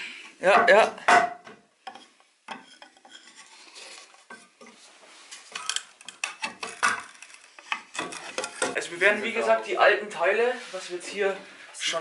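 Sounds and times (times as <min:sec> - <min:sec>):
pry bar scraping wood and nails: 0:05.6 - 0:08.8.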